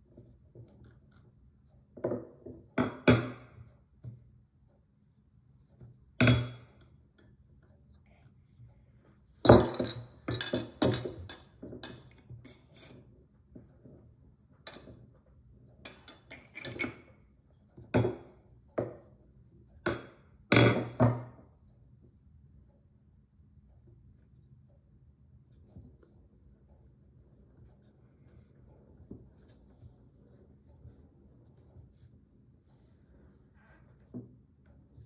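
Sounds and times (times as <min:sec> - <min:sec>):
tools knocking on wooden table: 0:02.0 - 0:04.2, 0:19.9 - 0:21.4.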